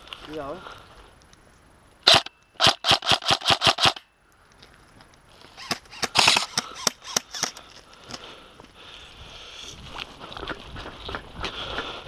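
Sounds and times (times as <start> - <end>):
airsoft rifle firing: 2.1 - 4.0, 5.6 - 7.6.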